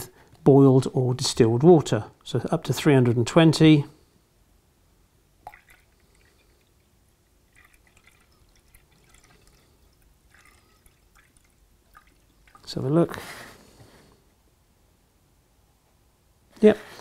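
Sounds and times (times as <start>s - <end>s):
water trickling into beaker: 5.4s - 13.0s.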